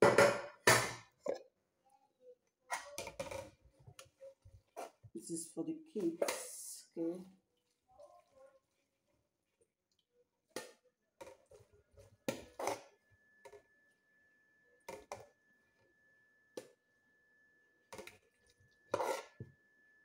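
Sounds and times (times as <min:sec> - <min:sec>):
metal spoon scraping cooking pot: 0:12.3 - 0:13.0, 0:18.9 - 0:19.4.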